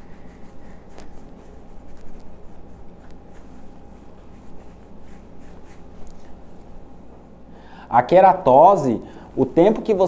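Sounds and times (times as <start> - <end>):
scrub rubbing on skin: 0.0 - 6.8.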